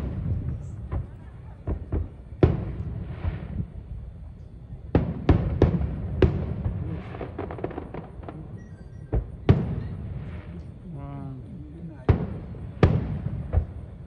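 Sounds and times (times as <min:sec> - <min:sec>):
fireworks bangs: 0:00.0 - 0:14.0
fireworks crackles: 0:00.0 - 0:14.0.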